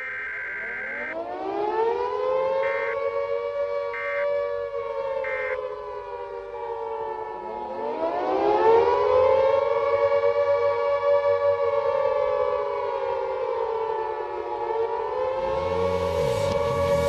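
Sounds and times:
air-raid siren wailing: 0.0 - 17.0
second siren winding up: 2.6 - 3.2, 3.9 - 4.4, 15.1 - 17.0.

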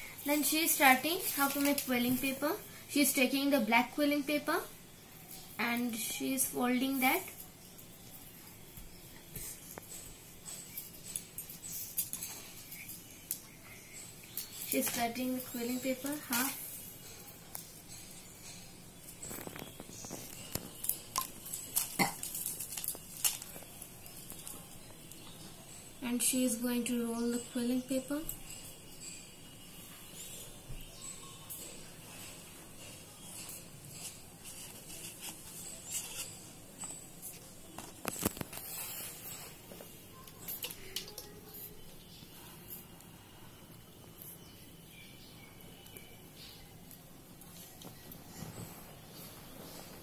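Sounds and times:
paper clicks and rustles: 19.2 - 25.3, 33.9 - 39.2.

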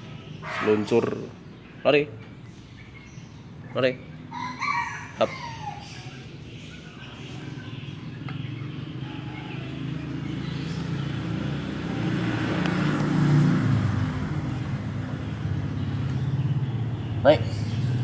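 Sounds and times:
vehicle engine passing by: 7.2 - 18.0.

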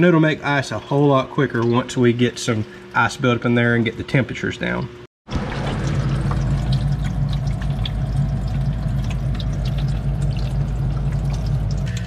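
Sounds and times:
water pump humming: 0.0 - 12.0
small water drips: 1.4 - 3.0, 5.3 - 12.0
water splashing and trickling: 5.2 - 12.0.

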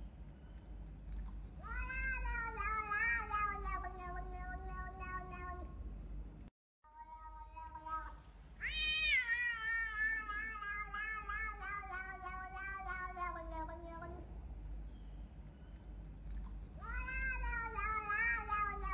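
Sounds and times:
cat meowing: 1.6 - 5.7, 6.9 - 14.2, 16.8 - 18.9.

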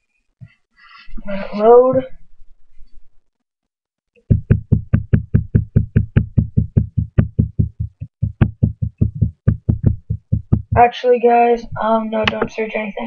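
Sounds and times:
rapid even knocking: 4.2 - 10.9.

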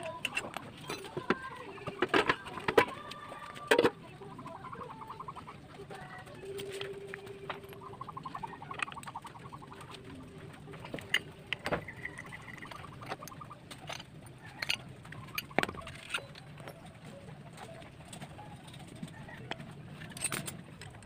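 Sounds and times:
metal parts clicking and knocking: 0.0 - 4.0, 6.8 - 16.9, 17.6 - 21.0
rapid trilling animal call: 4.6 - 6.2, 7.8 - 10.0.

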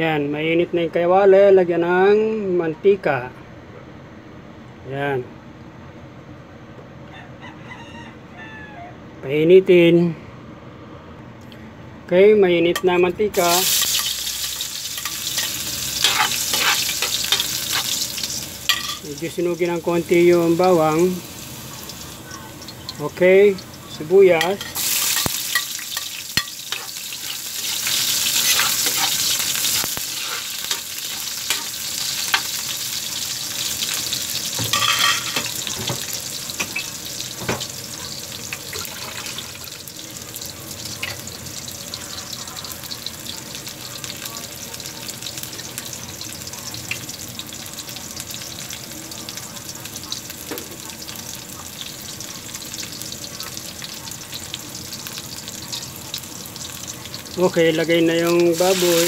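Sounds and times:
onions sizzling in oil: 13.3 - 59.0.

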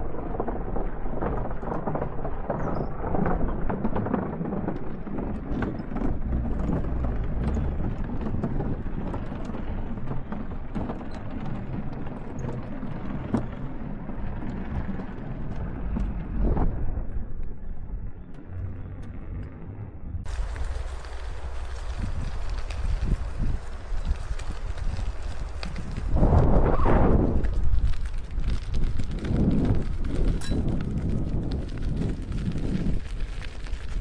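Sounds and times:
wind rumbling on microphone: 0.0 - 34.0.

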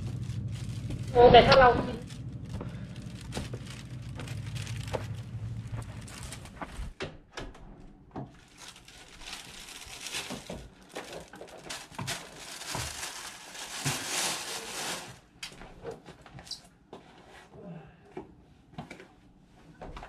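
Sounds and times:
plastic bag crinkling: 0.0 - 6.9, 8.3 - 15.3.

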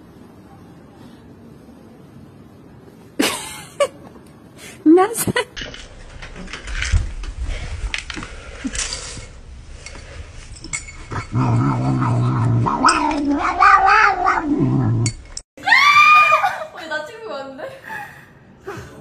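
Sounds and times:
cat growling yowl: 11.3 - 15.1.

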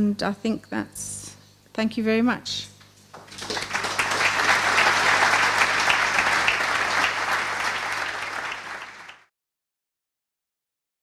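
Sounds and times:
audience applauding: 3.2 - 9.3.

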